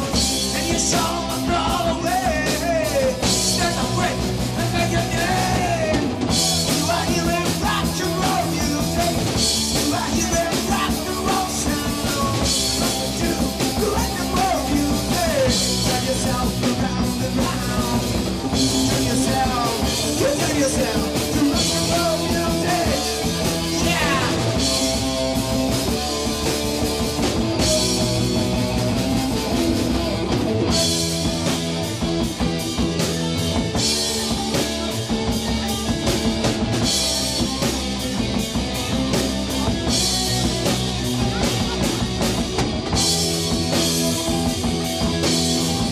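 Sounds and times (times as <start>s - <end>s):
person singing: 0.0s - 26.6s
drum kit with crashing cymbals: 0.0s - 45.9s
electric guitars: 0.0s - 45.9s.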